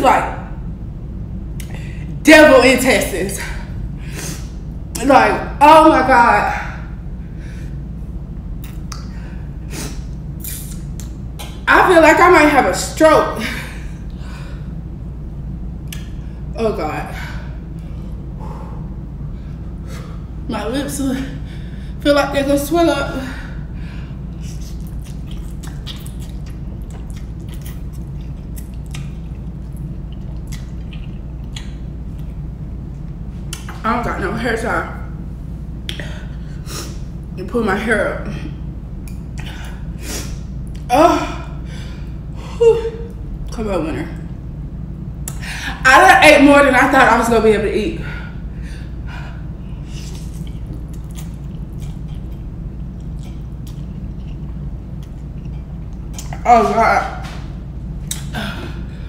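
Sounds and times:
low hum: 0:00.0 - 0:59.0
slurping and chewing noodles: 0:24.4 - 0:32.4, 0:49.9 - 0:56.4.

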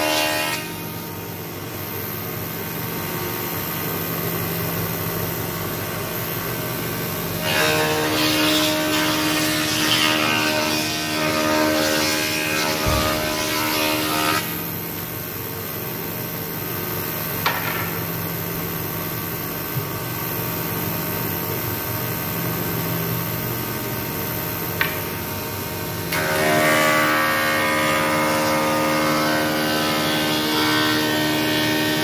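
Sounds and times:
wood shaper cutting a board: 0:07.4 - 0:14.6
machine humming unloaded: 0:12.4 - 0:14.8
knock: 0:12.8 - 0:13.4, 0:17.4 - 0:18.0.

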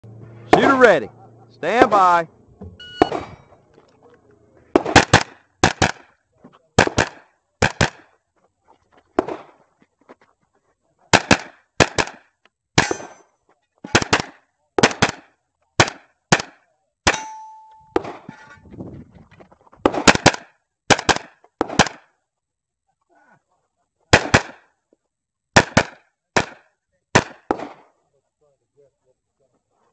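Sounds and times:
steel target ringing: 0:02.8 - 0:03.6, 0:12.8 - 0:13.3, 0:17.1 - 0:18.6
carbine shots: 0:03.0 - 0:03.5, 0:04.7 - 0:06.2, 0:06.8 - 0:08.1, 0:11.1 - 0:13.2, 0:13.9 - 0:17.4, 0:19.9 - 0:22.1, 0:24.1 - 0:24.7, 0:25.6 - 0:27.9.

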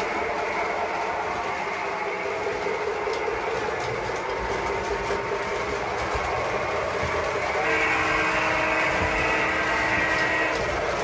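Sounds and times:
model train wheels rumbling on rails: 0:00.0 - 0:11.0.

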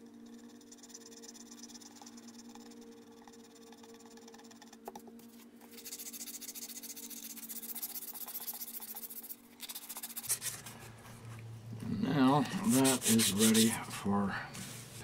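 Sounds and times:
file and sandpaper scratching: 0:05.7 - 0:10.7, 0:12.5 - 0:13.8.

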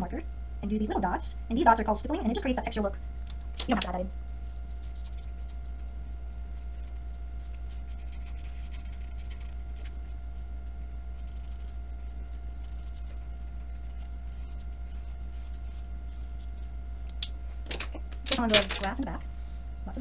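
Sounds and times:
low electrical hum: 0:00.0 - 0:20.0
marker scratching over paper: 0:04.4 - 0:16.7.

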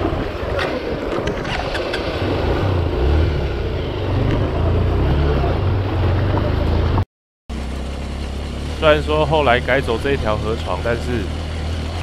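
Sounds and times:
water rushing around wheels: 0:00.0 - 0:12.0
motorcycle engine running: 0:00.6 - 0:12.0.

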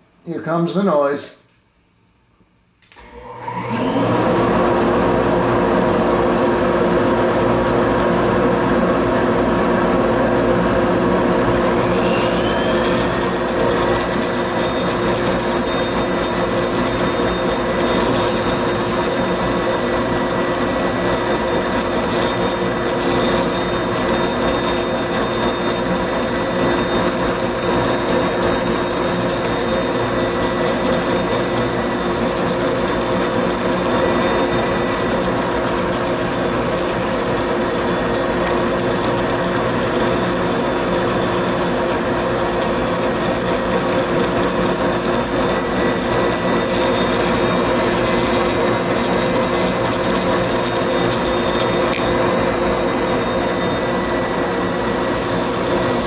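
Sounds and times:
dust collector running: 0:03.0 - 0:56.0
rotary tool sanding wood: 0:11.6 - 0:56.0.

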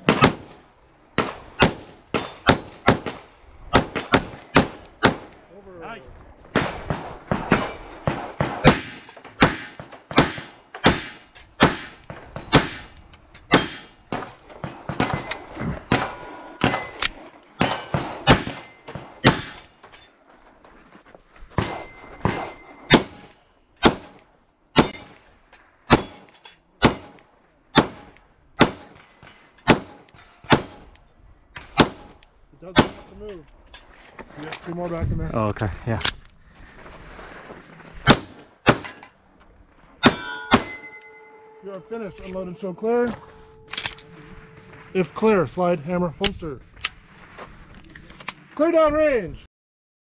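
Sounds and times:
pistol shots: 0:00.0 - 0:00.6, 0:01.2 - 0:05.4, 0:06.5 - 0:19.6, 0:21.6 - 0:24.2, 0:25.9 - 0:29.0, 0:31.7 - 0:33.1, 0:38.0 - 0:38.9
steel targets ringing: 0:04.1 - 0:05.1, 0:15.0 - 0:17.0, 0:21.6 - 0:23.3, 0:28.6 - 0:29.0, 0:40.0 - 0:45.4.

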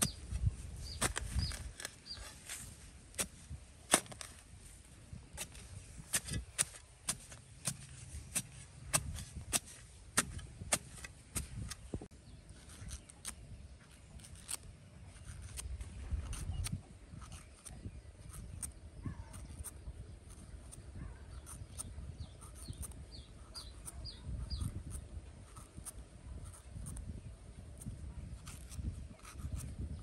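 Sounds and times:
metal tool chopping into soil: 0:00.0 - 0:04.5, 0:05.4 - 0:11.9.

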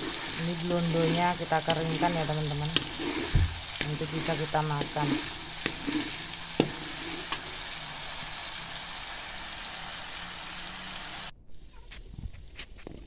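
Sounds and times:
metal spatula scraping pan: 0:00.0 - 0:07.8
cream sizzling in a wok: 0:00.0 - 0:11.9.

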